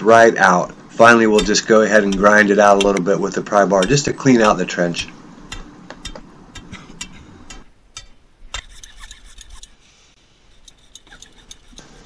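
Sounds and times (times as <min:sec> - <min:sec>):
pry bar scraping concrete: 0:01.0 - 0:04.8, 0:08.5 - 0:09.8, 0:10.5 - 0:12.0
pry bar clicking and knocking: 0:01.3 - 0:03.1.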